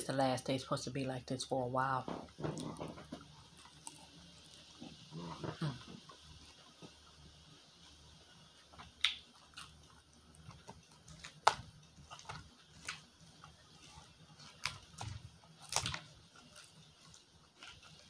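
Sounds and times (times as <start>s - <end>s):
chewing crunchy salad: 2.4s - 5.8s, 8.7s - 18.0s.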